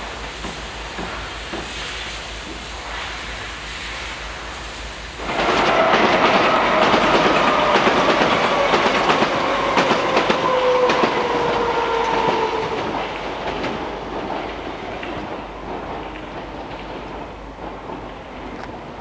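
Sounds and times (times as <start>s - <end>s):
train wheels clicking over joints: 0.0s - 2.7s, 5.2s - 19.0s
train whine falling in pitch: 5.2s - 14.0s.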